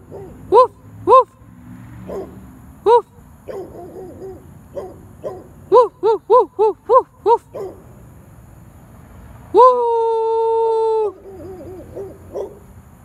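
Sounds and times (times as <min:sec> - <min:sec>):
dog barking: 0:00.0 - 0:01.3, 0:02.0 - 0:07.9, 0:11.2 - 0:12.7.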